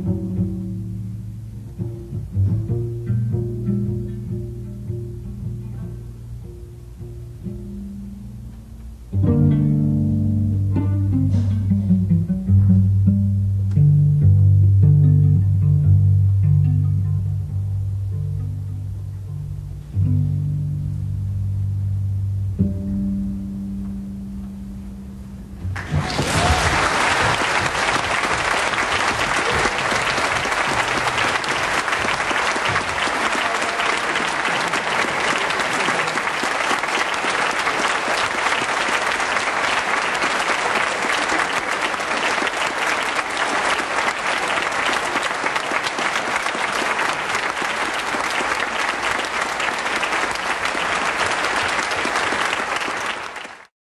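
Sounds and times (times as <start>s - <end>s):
audience applause: 25.8s - 53.7s.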